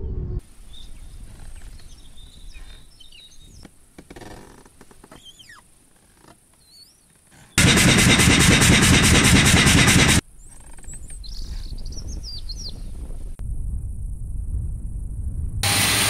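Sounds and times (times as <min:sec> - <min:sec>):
birds chirping faintly: 0:00.0 - 0:07.6
loud fast pulsing noise: 0:07.6 - 0:10.2, 0:15.6 - 0:16.0.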